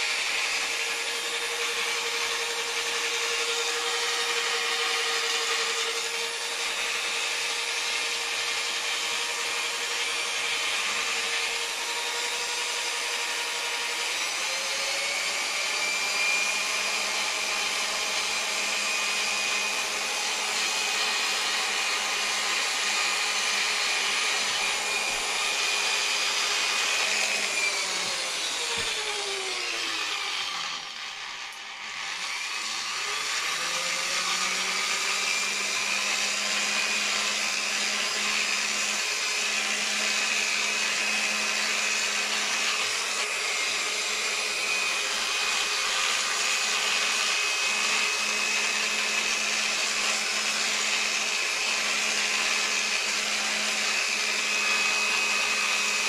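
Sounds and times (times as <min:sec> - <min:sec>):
electric polisher whine: 0:00.0 - 0:56.0.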